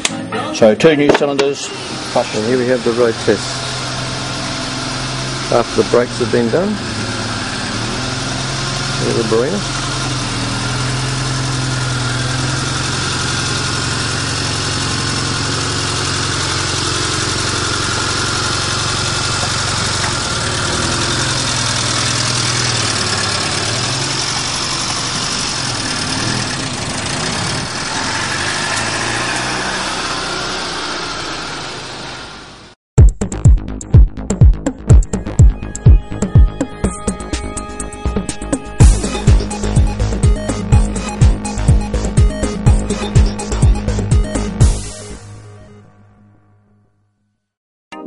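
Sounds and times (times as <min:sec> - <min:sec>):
small petrol engine running: 0:01.5 - 0:32.8, 0:38.8 - 0:45.3.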